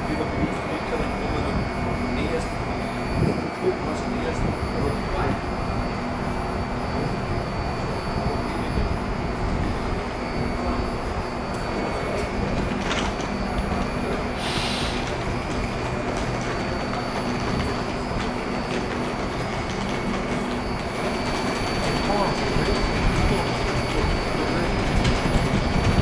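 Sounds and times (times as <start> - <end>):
electric train humming and whining: 0.0 - 26.0
air hiss: 14.4 - 15.2.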